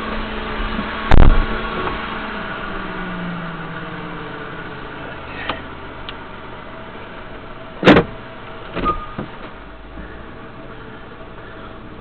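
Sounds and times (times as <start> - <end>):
loud thump in vehicle cab: 1.1 - 2.0, 7.8 - 10.1.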